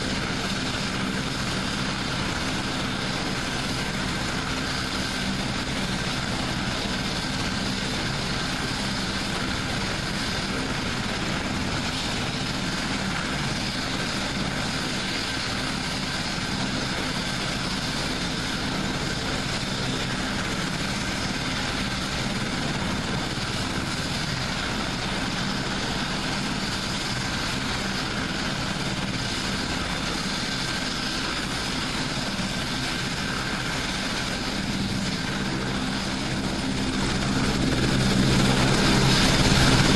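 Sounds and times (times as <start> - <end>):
helicopter turbine and rotor rumble: 0.0 - 39.9.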